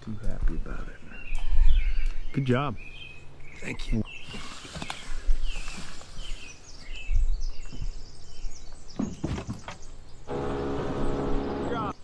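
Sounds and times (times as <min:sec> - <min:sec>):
small birds chirping: 0:00.0 - 0:12.0
steady motor hum: 0:10.3 - 0:11.9.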